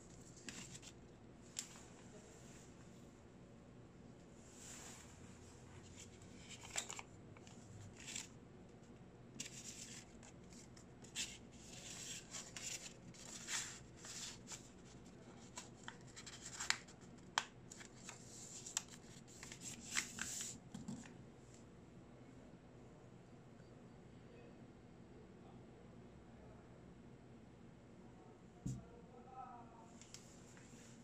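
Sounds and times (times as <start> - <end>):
paper rustling and crinkling: 0.1 - 2.0, 5.8 - 8.4, 9.4 - 21.1.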